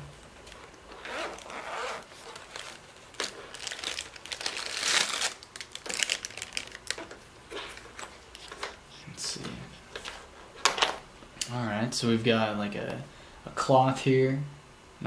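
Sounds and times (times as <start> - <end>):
plastic bag crinkling: 0.4 - 8.7
zipper being pulled open: 0.9 - 2.6.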